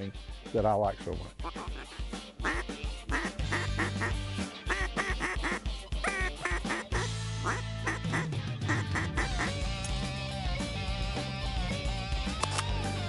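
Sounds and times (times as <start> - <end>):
background music with beat: 0.0 - 13.0
ducks quacking: 1.4 - 9.7.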